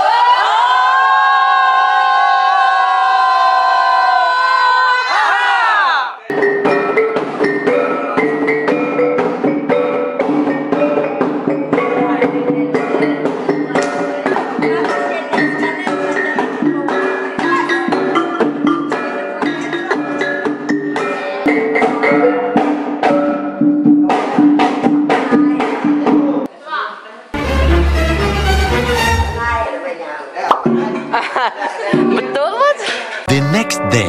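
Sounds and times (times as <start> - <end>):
drum: 33.3 - 34.0.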